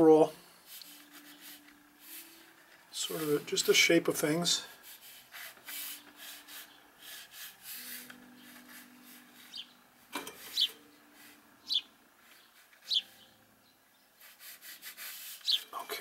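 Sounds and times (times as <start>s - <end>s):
pencil scratching on paper: 0.7s - 2.3s, 4.8s - 9.6s, 14.2s - 15.7s
high falling chirps: 10.4s - 13.8s.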